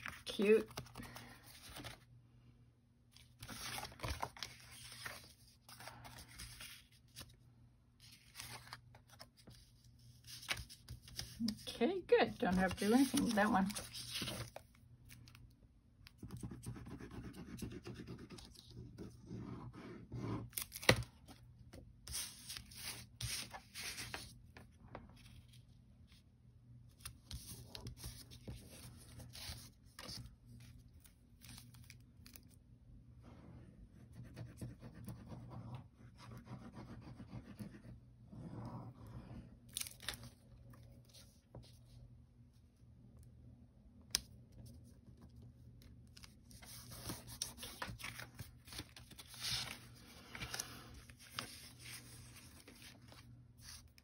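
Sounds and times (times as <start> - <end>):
paper rustling and sliding: 0.0 - 2.0, 3.2 - 7.4, 12.4 - 14.7, 22.0 - 24.4, 46.5 - 54.0.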